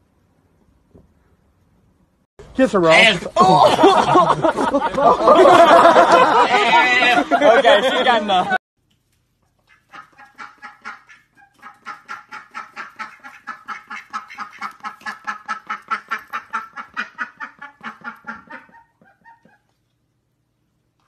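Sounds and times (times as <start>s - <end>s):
ducks quacking: 2.8s - 3.3s, 9.7s - 19.7s.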